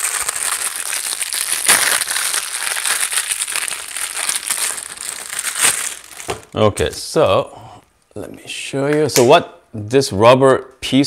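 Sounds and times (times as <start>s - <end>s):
plastic packet crinkling: 0.0s - 6.6s.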